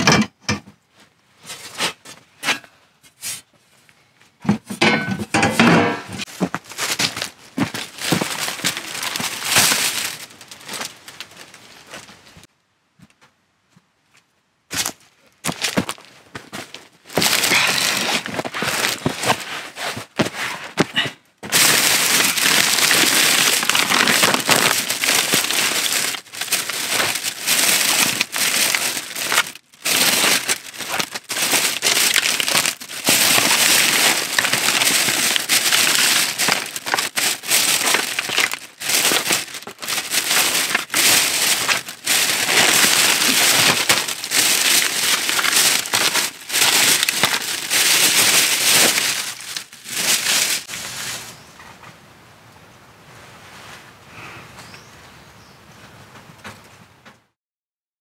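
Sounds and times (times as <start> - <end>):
plastic bags rustling and crinkling: 6.2 - 12.5, 15.4 - 51.5.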